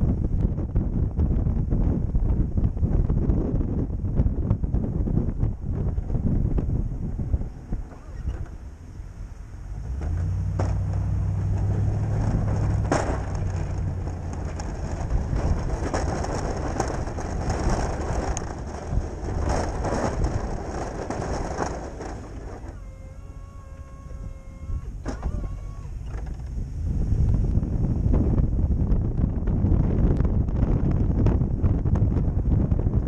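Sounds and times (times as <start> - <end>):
truck engine under load: 0.1 - 33.0
plow blade scraping snow: 7.0 - 28.2.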